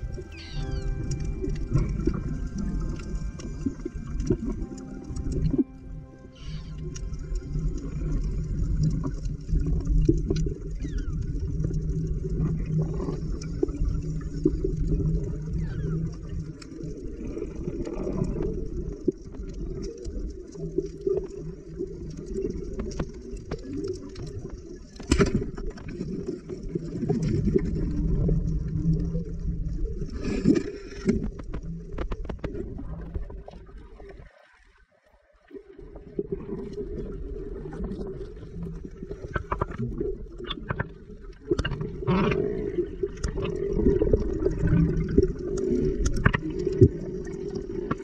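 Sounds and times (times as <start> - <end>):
low hum: 0.0 - 10.7
muffled underwater rumble: 0.0 - 34.3, 35.5 - 48.0
underwater clicks and crackles: 0.0 - 48.0.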